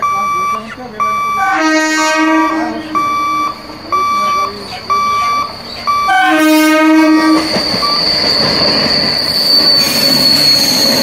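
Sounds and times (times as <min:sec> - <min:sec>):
short electronic beep: 0:00.0 - 0:01.7, 0:02.7 - 0:06.4, 0:07.2 - 0:11.0
train horn: 0:01.4 - 0:02.9, 0:06.1 - 0:07.5
train wheels rumbling on rail joints: 0:02.4 - 0:11.0.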